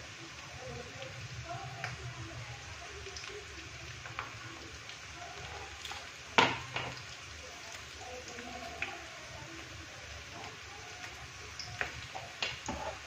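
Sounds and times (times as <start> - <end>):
onions sizzling in oil: 0.0 - 13.0
small pops of spices: 6.4 - 7.1, 10.4 - 13.0.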